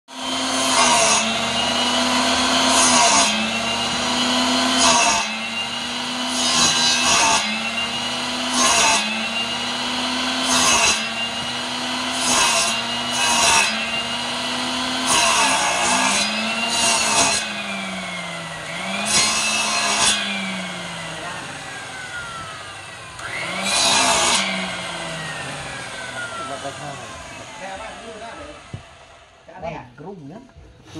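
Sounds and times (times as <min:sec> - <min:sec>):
saw blade rasping through wood: 0:00.1 - 0:29.0
mitre saw motor whine: 0:00.1 - 0:29.4.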